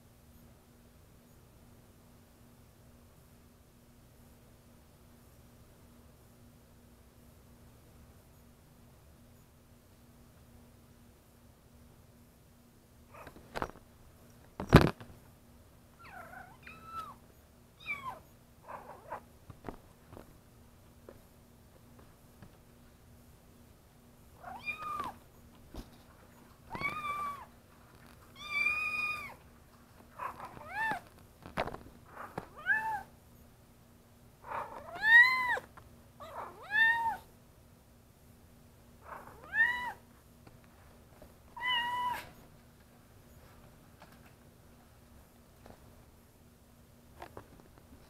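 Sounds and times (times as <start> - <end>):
kittens meowing: 16.0 - 17.2, 17.8 - 19.2, 24.4 - 25.2, 26.7 - 27.5, 28.4 - 29.4, 34.5 - 37.3, 39.1 - 40.0, 41.6 - 42.4.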